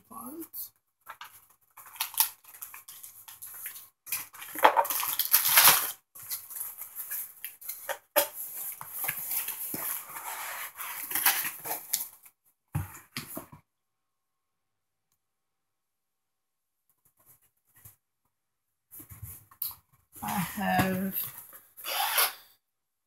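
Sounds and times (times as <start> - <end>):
packaging rustling and crinkling: 1.1 - 12.3.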